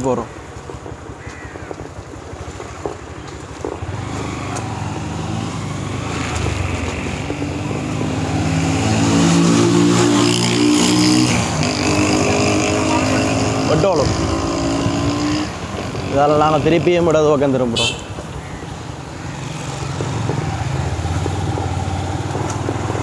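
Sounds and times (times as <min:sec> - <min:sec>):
wind rushing over microphone: 0:01.8 - 0:17.4
motorcycle engine accelerating: 0:03.8 - 0:17.2.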